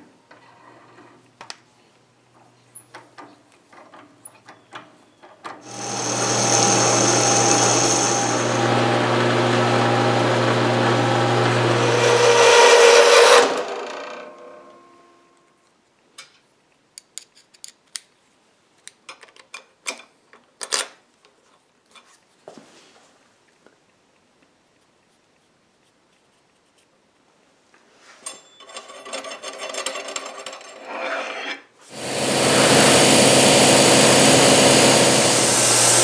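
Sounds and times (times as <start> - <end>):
machine motor cutting steel: 5.6 - 14.2, 31.9 - 36.0
metal parts clicking and knocking: 17.0 - 18.0, 28.3 - 30.8.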